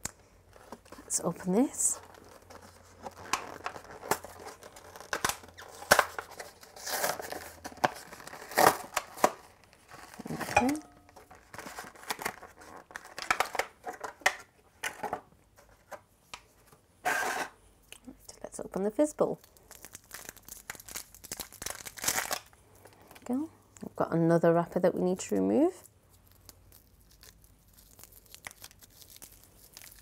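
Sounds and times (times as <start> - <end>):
plastic packet tearing and crinkling: 0.5 - 14.3, 19.3 - 23.3, 25.7 - 30.0.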